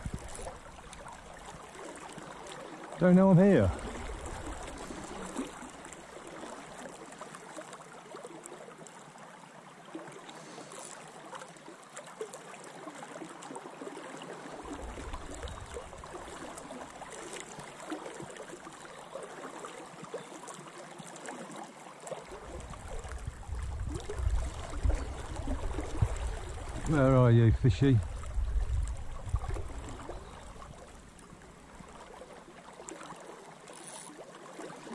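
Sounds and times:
river rushing and gurgling: 0.0 - 19.7, 21.2 - 33.7.

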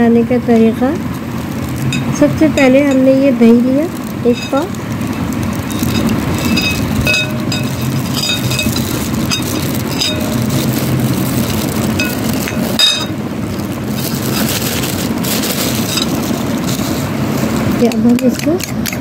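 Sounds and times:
steady low rumble: 0.0 - 18.3
metal spoon clinking glass bowl: 1.9 - 3.2, 4.2 - 4.7, 5.7 - 10.8, 11.9 - 13.2.

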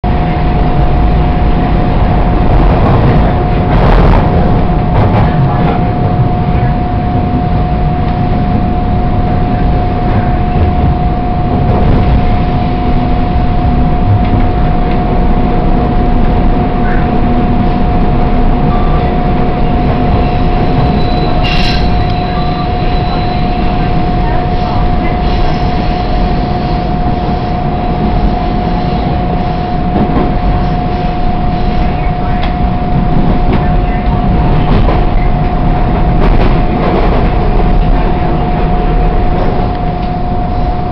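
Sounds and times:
steady whining tone: 0.0 - 40.9
subway train rumbling on rails: 0.0 - 40.9
high squeal: 19.7 - 26.4.

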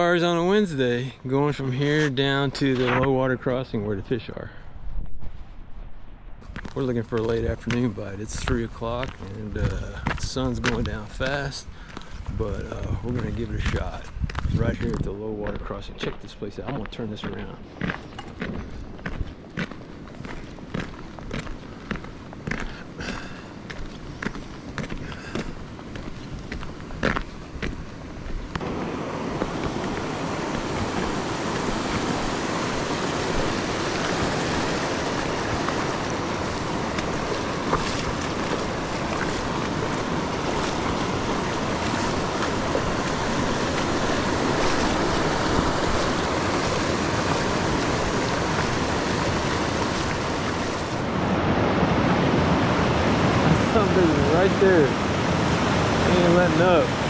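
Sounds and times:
footsteps on gravel: 6.4 - 51.1
river rushing over rocks: 28.6 - 57.0.

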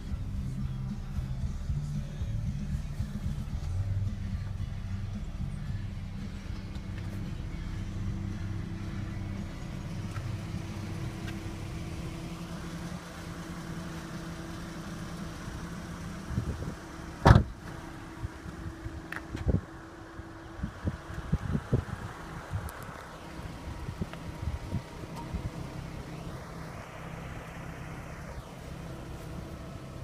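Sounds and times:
car engine idling: 0.0 - 30.0
car door slamming: 17.2 - 17.8.

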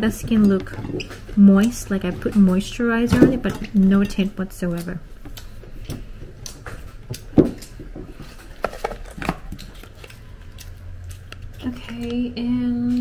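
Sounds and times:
hands rummaging in box: 8.2 - 10.0.

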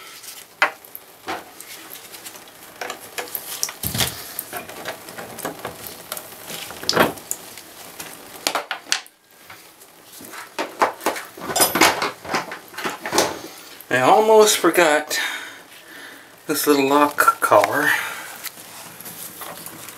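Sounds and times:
metal faucet parts clinking: 11.5 - 12.0.

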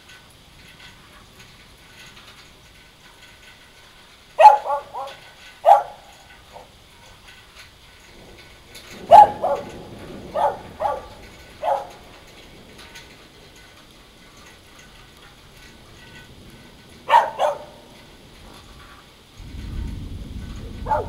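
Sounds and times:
dog barking: 4.4 - 6.7, 9.1 - 12.0, 17.1 - 17.8.

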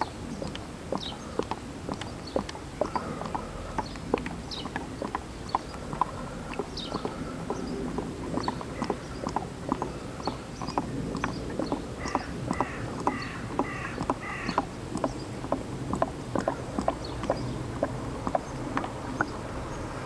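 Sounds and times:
oil glugging out of bottle: 0.3 - 19.7.

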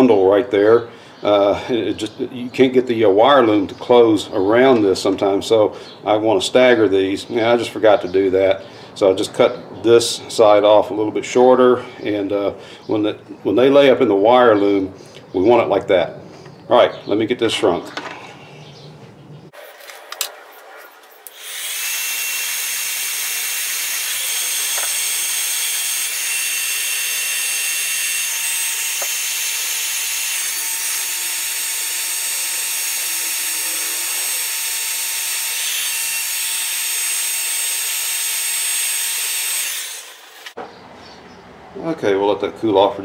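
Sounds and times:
heat gun fan whine: 21.2 - 40.6.

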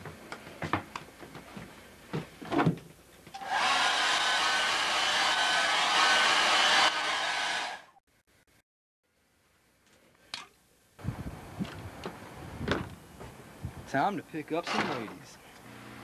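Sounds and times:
hair dryer blowing: 3.4 - 7.9.

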